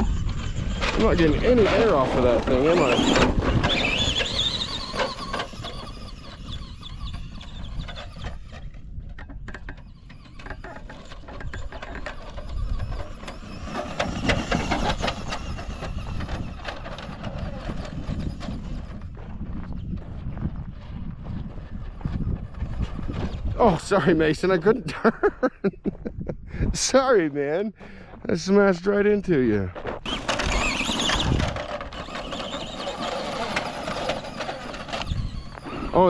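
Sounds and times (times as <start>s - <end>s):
electric motor whining: 0.0s - 20.0s, 30.0s - 36.0s
tyres rumbling on loose dirt: 0.0s - 25.9s, 26.7s - 36.0s.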